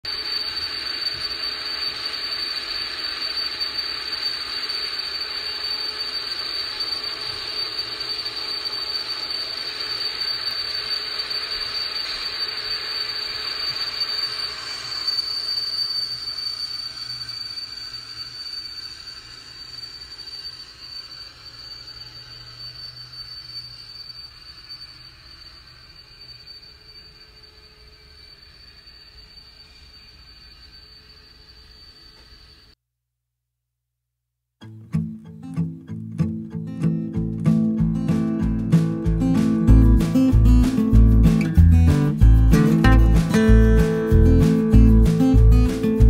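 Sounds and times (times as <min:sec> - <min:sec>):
model train squealing and rolling: 0:00.0 - 0:32.8, 0:36.6 - 0:46.0.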